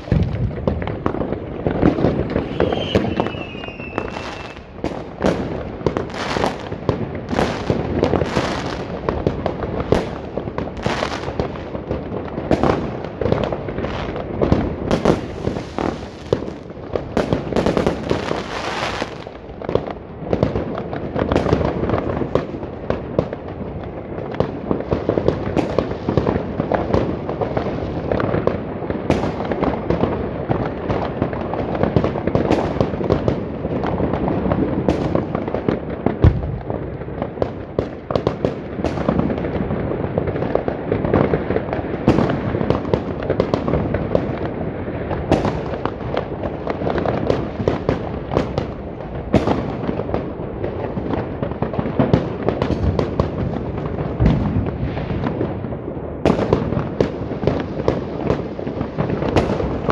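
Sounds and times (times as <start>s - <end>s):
heavy firework boom: 0.0s - 5.6s, 36.2s - 36.8s, 54.2s - 55.4s
high crackling hiss: 0.0s - 16.7s
fireworks and firecrackers banging: 0.0s - 59.9s.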